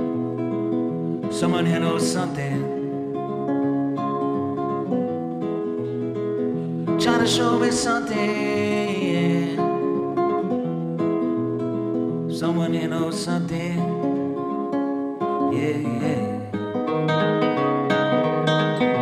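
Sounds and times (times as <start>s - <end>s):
plucked classical guitar: 0.0s - 19.0s
man singing: 1.2s - 3.2s, 6.9s - 10.4s, 12.3s - 14.6s, 15.2s - 16.8s.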